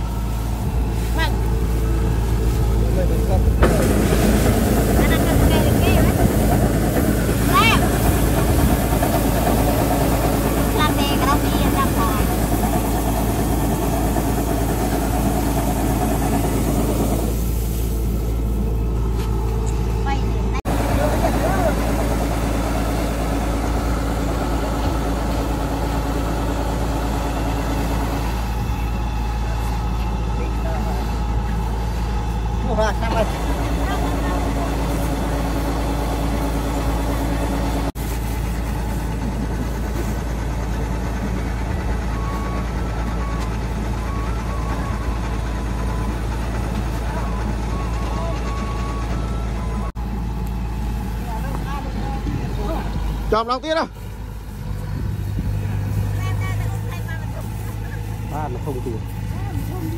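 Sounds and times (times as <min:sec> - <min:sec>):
grain pouring hiss: 0:00.0 - 0:19.5, 0:33.4 - 0:40.4
harvester engine running: 0:00.0 - 0:59.9.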